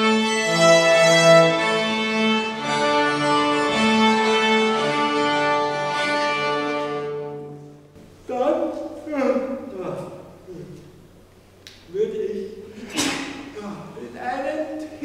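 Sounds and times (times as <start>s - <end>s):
string ensemble playing: 0.0s - 8.6s.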